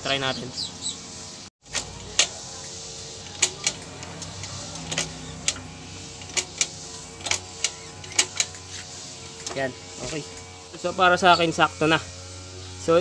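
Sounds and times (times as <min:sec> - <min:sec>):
steady hum: 0:00.0 - 0:13.0
motorcycle gearbox clicking: 0:03.2 - 0:08.6.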